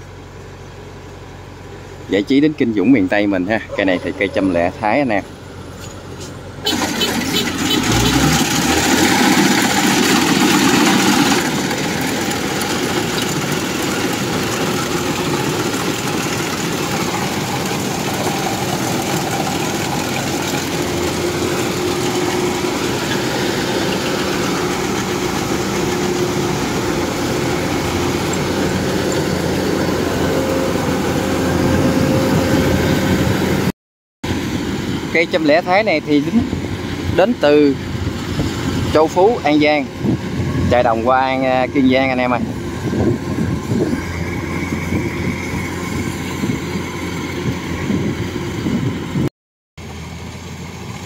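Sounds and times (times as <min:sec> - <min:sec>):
combine harvester engine drone: 0:00.0 - 0:33.7, 0:34.3 - 0:51.0.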